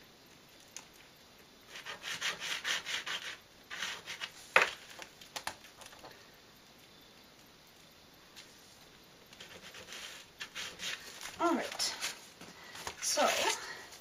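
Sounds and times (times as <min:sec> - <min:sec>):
pencil scratching on paper: 0:01.7 - 0:04.3, 0:09.4 - 0:11.2.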